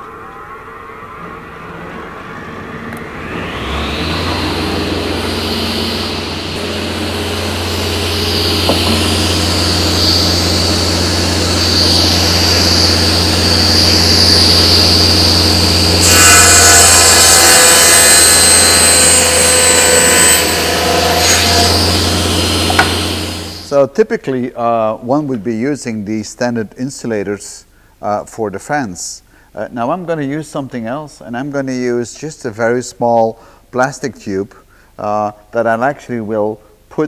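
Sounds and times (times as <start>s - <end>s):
circular saw cutting wood: 1.2s - 23.7s.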